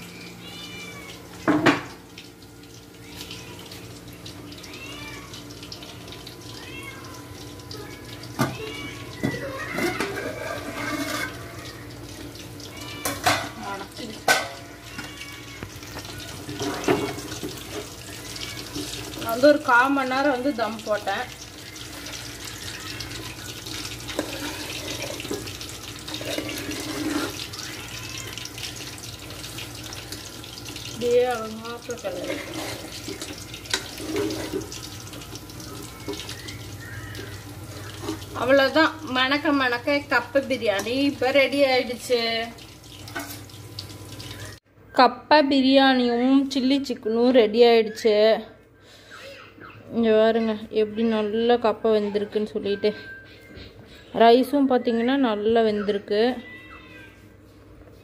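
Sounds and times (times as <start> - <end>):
spoon scraping rice in a pot: 10.2 - 11.4, 24.1 - 25.5, 26.1 - 27.4, 32.1 - 34.7.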